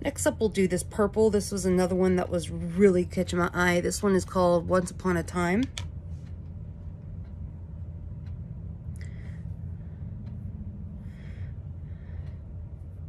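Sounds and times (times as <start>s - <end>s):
low background hum: 0.0s - 13.0s
soft breaths: 8.5s - 13.0s.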